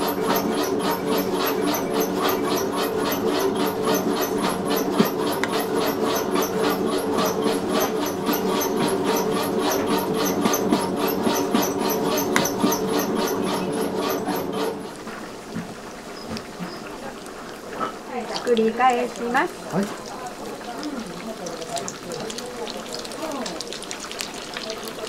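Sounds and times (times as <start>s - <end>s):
machine motor hum: 0.0s - 16.9s
regular machine clatter: 0.0s - 17.0s.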